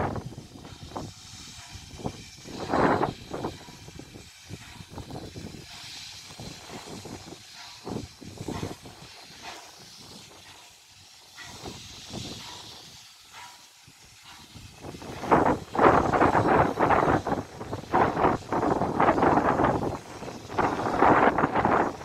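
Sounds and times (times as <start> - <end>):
wind buffeting microphone: 0.0 - 10.5, 13.9 - 22.0
steam locomotive hissing: 0.0 - 22.0.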